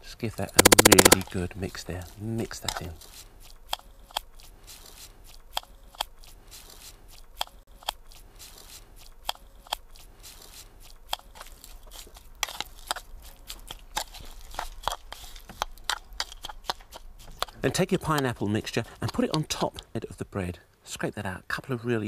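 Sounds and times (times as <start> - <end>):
sharp clicks: 0.6 - 1.2
spoon stirring crunchy mixture: 0.6 - 1.2, 1.8 - 19.9.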